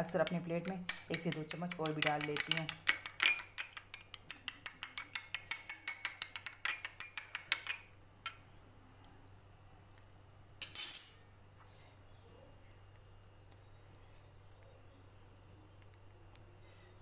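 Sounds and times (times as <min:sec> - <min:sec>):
metal spoon tapping glass bowl: 0:00.0 - 0:08.4
spoon scraping bowl: 0:00.1 - 0:07.9.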